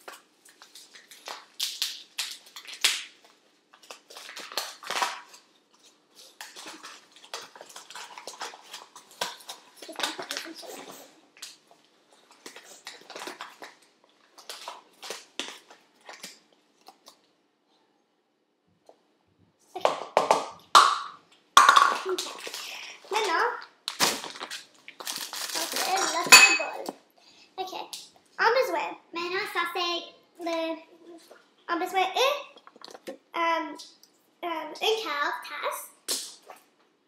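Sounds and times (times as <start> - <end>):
utensils clinking against a bowl: 25.8 - 26.9.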